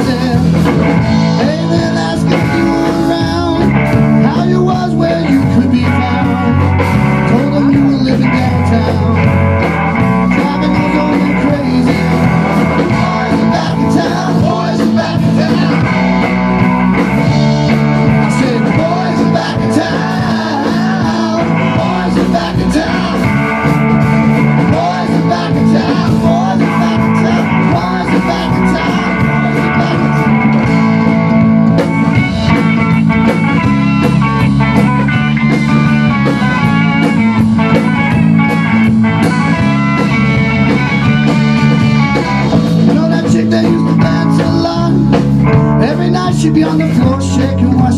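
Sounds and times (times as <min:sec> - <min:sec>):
person singing: 0:00.0 - 0:09.4, 0:10.1 - 0:16.4, 0:18.0 - 0:31.1, 0:41.7 - 0:47.9
drum kit: 0:00.0 - 0:47.9
electric bass: 0:00.0 - 0:47.9
electric guitar: 0:00.0 - 0:47.9.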